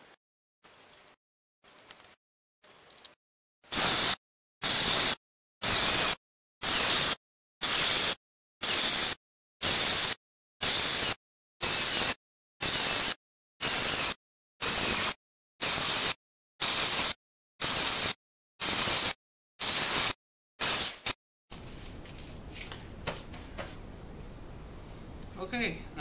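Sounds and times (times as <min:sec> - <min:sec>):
angle grinder cutting acrylic: 0:00.0 - 0:21.2.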